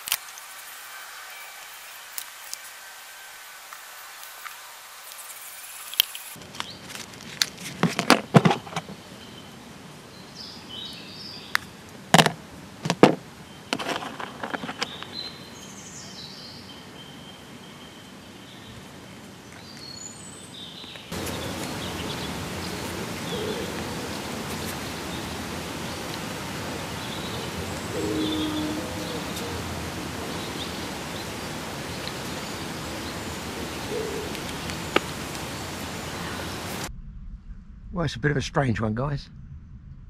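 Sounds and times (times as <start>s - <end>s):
background hiss: 0.0s - 36.9s
birds chirping: 13.4s - 36.9s.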